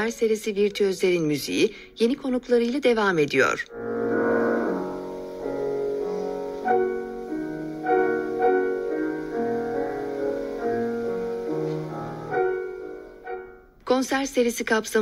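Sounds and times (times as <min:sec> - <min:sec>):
slow classical piano piece: 0:03.7 - 0:13.8.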